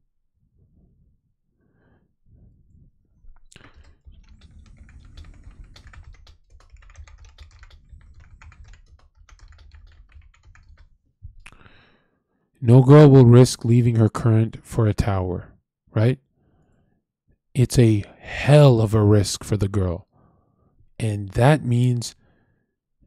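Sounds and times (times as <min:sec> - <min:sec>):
fast typing on keyboard: 0:03.5 - 0:11.0.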